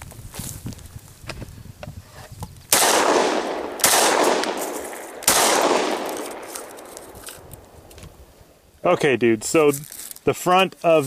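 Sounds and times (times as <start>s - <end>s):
pistol shots echoing: 2.7s - 7.0s.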